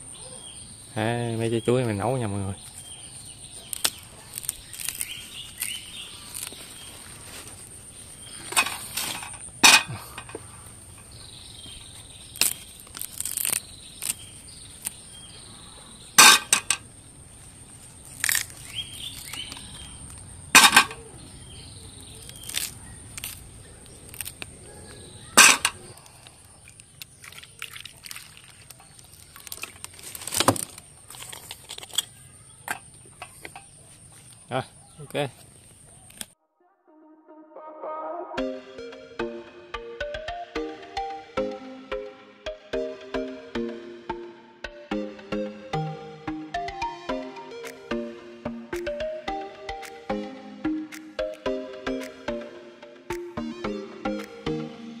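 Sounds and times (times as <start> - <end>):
dry leaves rustling: 2.4 - 15.2, 25.2 - 32.3
bananas snapping off bunch: 3.6 - 6.6, 12.3 - 15.0.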